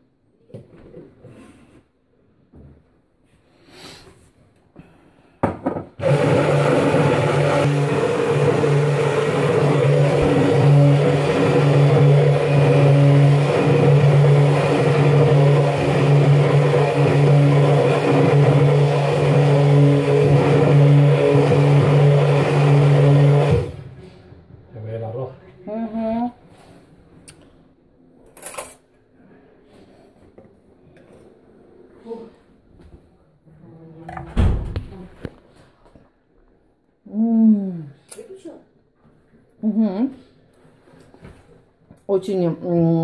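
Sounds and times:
electric blender running: 0:06.0 - 0:24.0.

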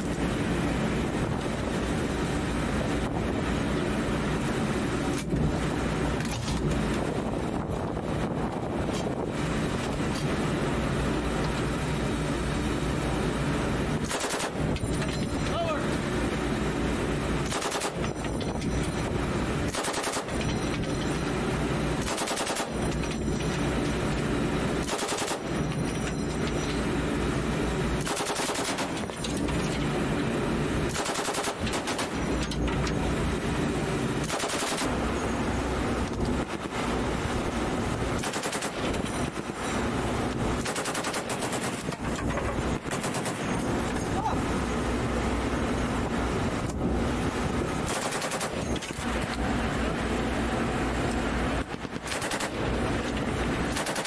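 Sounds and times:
steady low rumble: 0:00.0 - 0:54.0
machine gun firing bursts: 0:14.0 - 0:14.7, 0:17.4 - 0:18.3, 0:19.7 - 0:20.8, 0:22.0 - 0:23.1, 0:24.8 - 0:25.7, 0:28.0 - 0:29.2, 0:30.9 - 0:32.4, 0:34.2 - 0:35.0, 0:38.2 - 0:39.0, 0:40.6 - 0:42.2, 0:42.8 - 0:43.7, 0:47.8 - 0:48.8, 0:52.0 - 0:52.7, 0:53.7 - 0:54.0.

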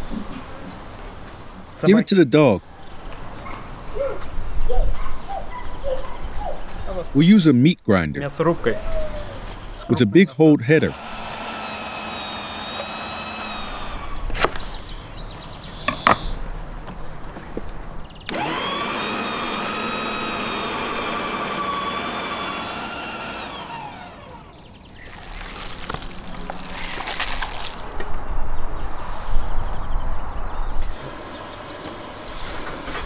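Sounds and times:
meat grinder motor whining: 0:10.9 - 0:14.3, 0:18.3 - 0:24.5, 0:30.8 - 0:33.0.

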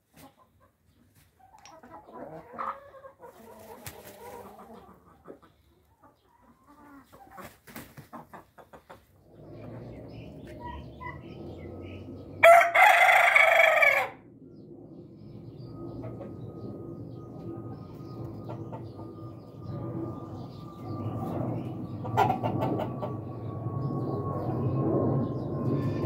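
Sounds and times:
chickens clucking: 0:00.0 - 0:12.4, 0:17.3 - 0:23.4
rooster crowing: 0:12.4 - 0:14.3.

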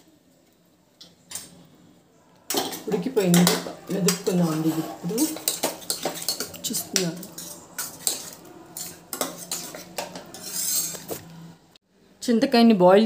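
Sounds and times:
metal ladle scraping pot: 0:02.5 - 0:11.3.

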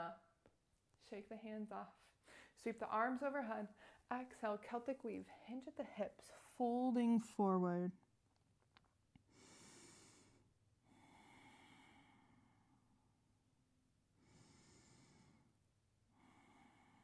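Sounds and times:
person breathing softly: 0:02.0 - 0:02.6, 0:03.7 - 0:04.1, 0:09.2 - 0:13.2, 0:14.2 - 0:17.0.

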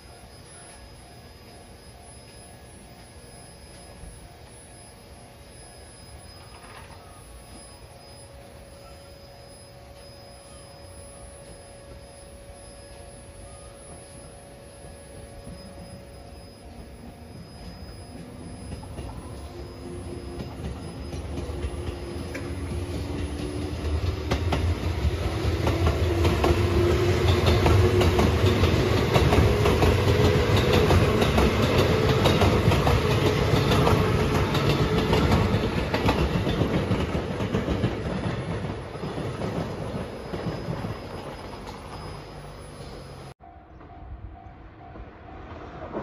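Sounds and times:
traction motor whine: 0:00.0 - 0:43.4
train passing: 0:00.0 - 0:46.0
wheels clattering on rails: 0:17.5 - 0:43.3.

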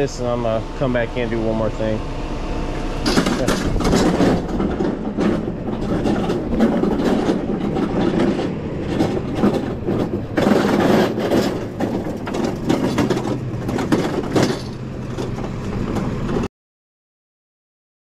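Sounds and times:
hand truck wheels rattling on concrete: 0:03.0 - 0:16.1.

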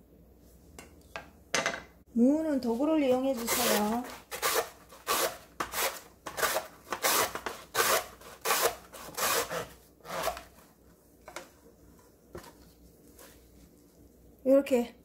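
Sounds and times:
radish rasping on mandoline slicer: 0:03.3 - 0:10.5.

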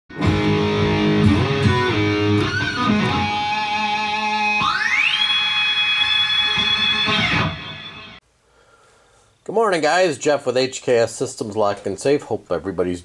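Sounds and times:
guitar intro music: 0:00.1 - 0:08.2.

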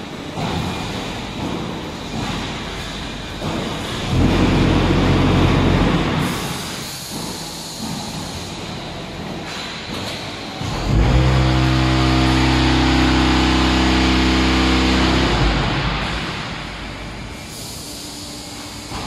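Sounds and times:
machinery rumble and clatter: 0:00.0 - 0:19.0
low hum: 0:10.6 - 0:17.5.

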